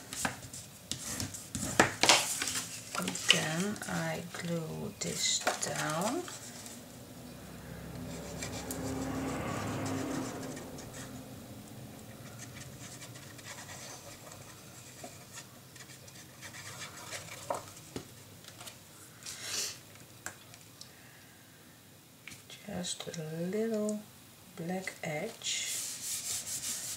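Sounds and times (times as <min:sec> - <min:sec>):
paper rustling: 0:00.0 - 0:06.8, 0:12.2 - 0:18.8.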